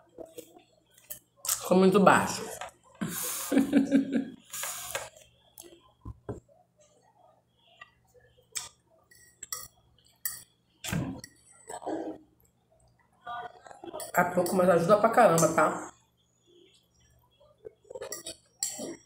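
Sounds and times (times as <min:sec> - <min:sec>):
fork clinking against glass plate: 0:08.6 - 0:10.5, 0:17.9 - 0:19.0.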